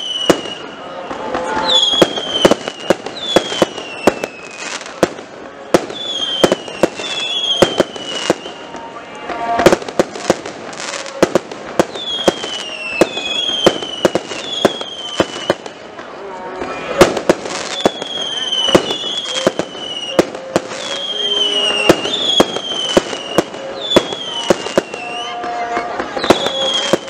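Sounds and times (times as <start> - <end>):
falling firework whistles: 0.0 - 5.0, 5.7 - 11.2, 11.8 - 15.8, 16.6 - 27.0
fireworks bangs: 0.0 - 27.0.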